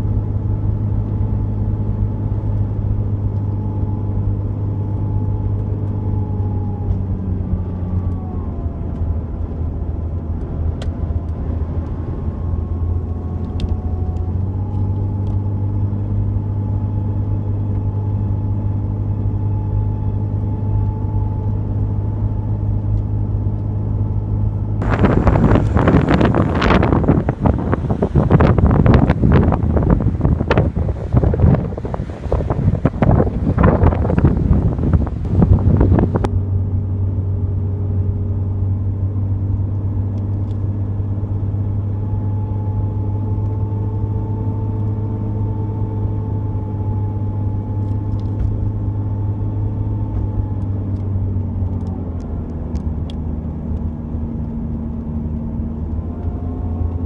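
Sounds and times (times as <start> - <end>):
car engine and road noise drone: 0.0 - 57.0
wind buffeting microphone: 24.8 - 36.3.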